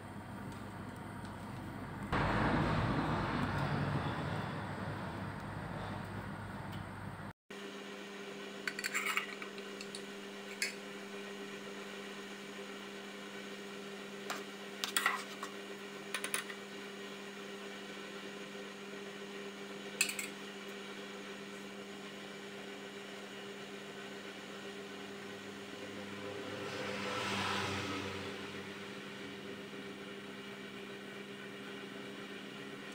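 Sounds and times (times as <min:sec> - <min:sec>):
gas stove hum: 0:00.0 - 0:32.9.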